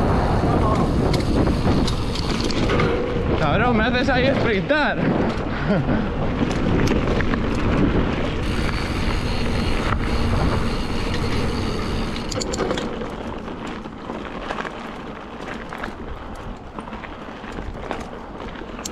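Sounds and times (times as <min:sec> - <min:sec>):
bike tyres rumbling on dirt: 0:00.0 - 0:18.9
high buzzing tone: 0:08.4 - 0:12.8.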